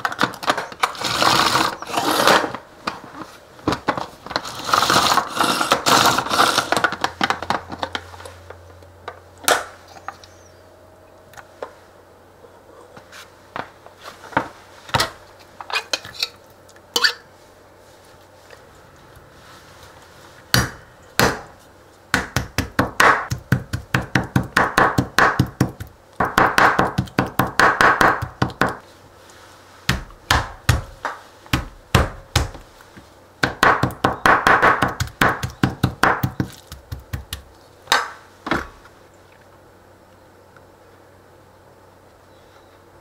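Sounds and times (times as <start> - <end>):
knife chopping on plastic board: 22.1 - 28.8, 33.4 - 37.5.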